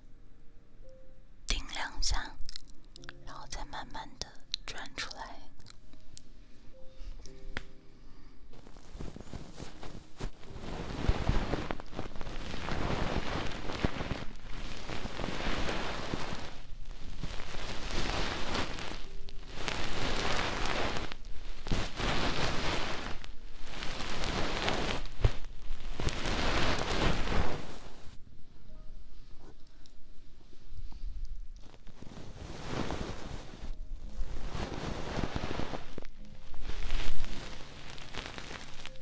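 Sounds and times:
hand rubbing microphone: 0:08.5 - 0:28.2, 0:30.5 - 0:39.0.

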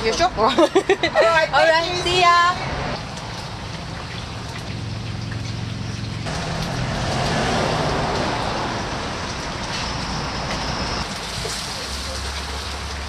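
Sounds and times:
street traffic noise: 0:00.0 - 0:13.0
vehicle passing: 0:00.8 - 0:11.1.

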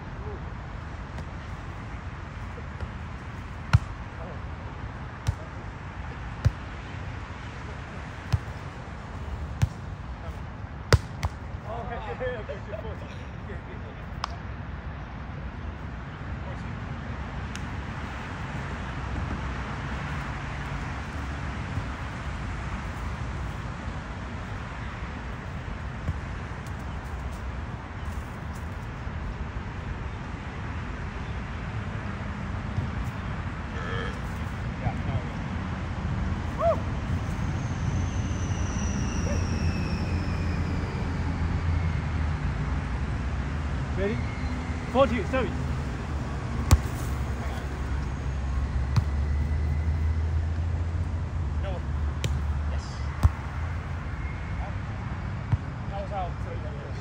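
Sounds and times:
aircraft engine whine passing overhead: 0:37.4 - 0:43.1.

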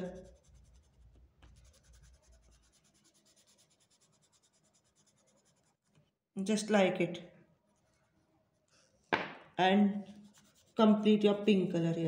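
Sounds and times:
oil pastel scratching on paper: 0:00.0 - 0:06.2, 0:07.6 - 0:09.1, 0:10.0 - 0:11.5.

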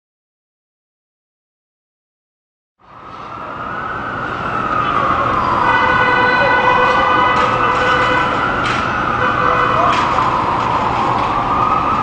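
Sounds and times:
city street traffic: 0:02.8 - 0:12.0
emergency vehicle siren wailing: 0:02.8 - 0:12.0.

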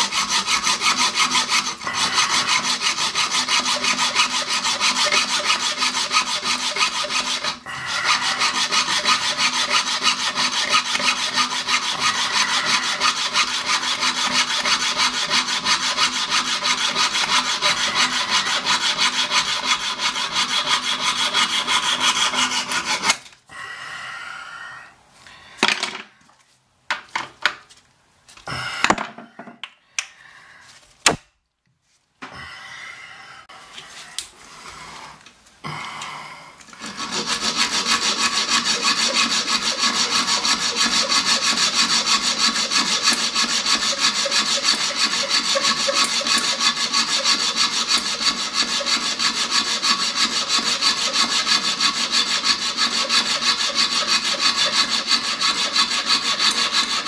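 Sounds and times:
hacksaw cutting metal bolt: 0:36.8 - 0:57.0.

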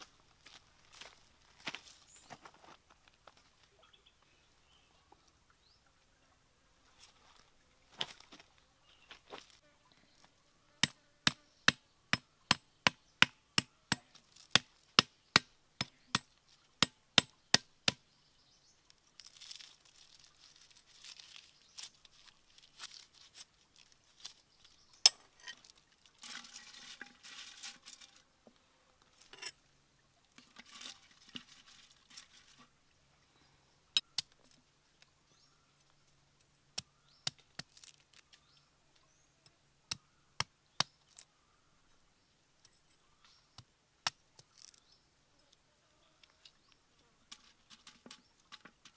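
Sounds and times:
cleaver chopping on stone: 0:10.8 - 0:18.0
greens rustling and tearing: 0:19.0 - 0:28.2.

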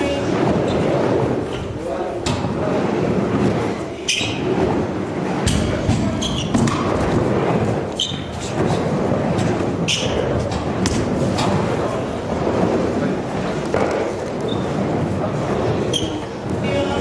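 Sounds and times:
children's voices echoing: 0:00.0 - 0:01.1, 0:15.3 - 0:17.0
wheels rolling on plywood ramps: 0:00.0 - 0:17.0.

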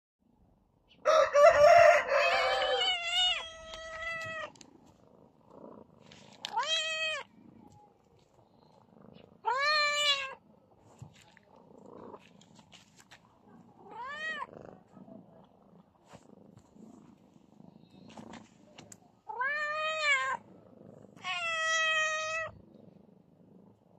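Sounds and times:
cat meowing: 0:02.3 - 0:04.6, 0:06.4 - 0:07.3, 0:09.4 - 0:10.4, 0:13.8 - 0:14.5, 0:19.3 - 0:20.4, 0:21.2 - 0:22.6.

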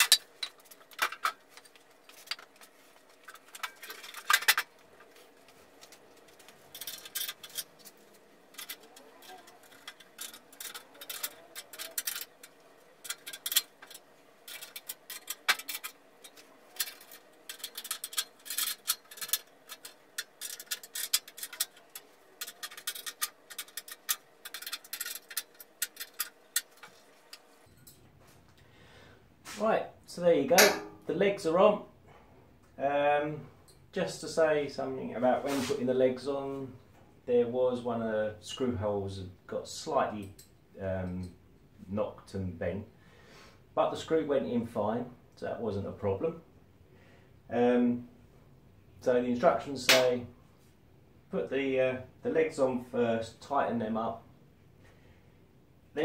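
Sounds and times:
faint steady hum: 0:00.0 - 0:56.0
metallic clicks of bolts and tool: 0:08.5 - 0:28.0.

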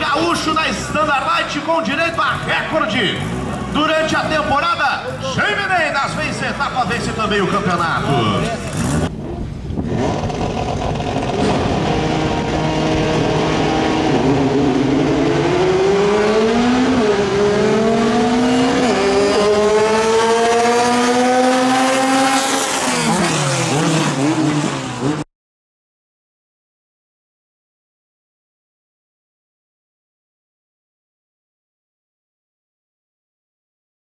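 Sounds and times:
racing car engine at full throttle: 0:00.0 - 0:25.3.

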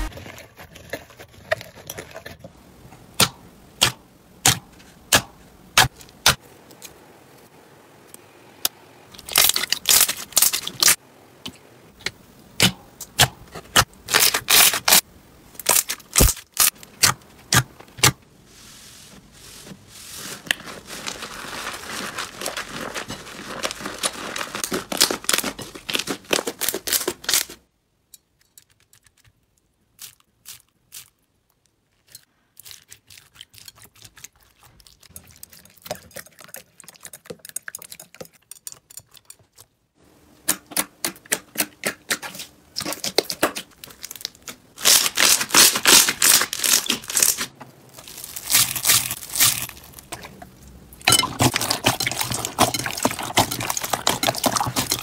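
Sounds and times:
slime crackling and popping: 0:42.8 - 0:50.2.

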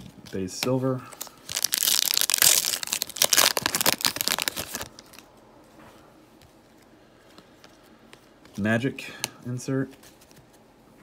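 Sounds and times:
foil wrapper tearing and crinkling: 0:01.4 - 0:05.3.

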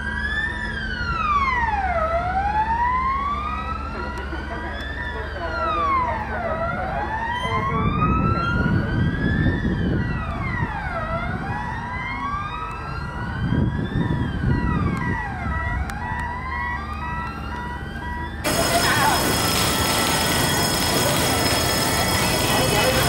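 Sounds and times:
engine and road noise: 0:00.0 - 0:23.0
fire engine wail siren: 0:00.0 - 0:23.0.

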